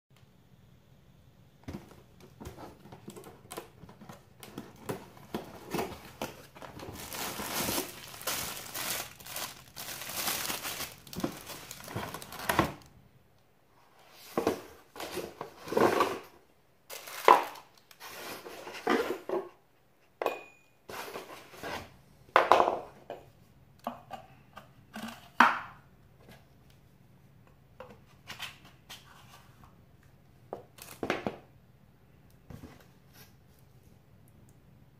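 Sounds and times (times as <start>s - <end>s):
cardboard crinkling and tearing: 4.6s - 12.9s, 16.9s - 18.5s.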